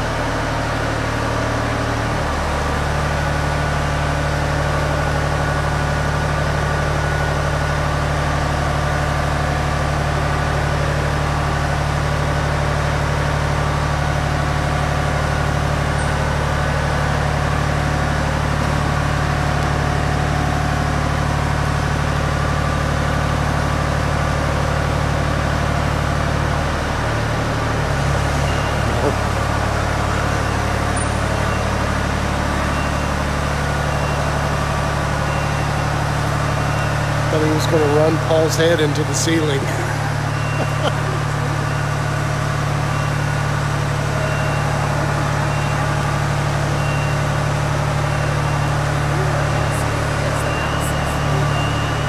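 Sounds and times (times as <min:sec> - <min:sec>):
power unit humming: 0:36.0 - 0:52.0.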